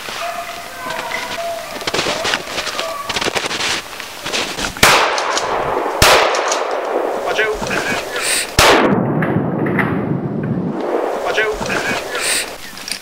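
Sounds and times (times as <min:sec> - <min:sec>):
gunshots echoing through woods: 0:04.7 - 0:12.6.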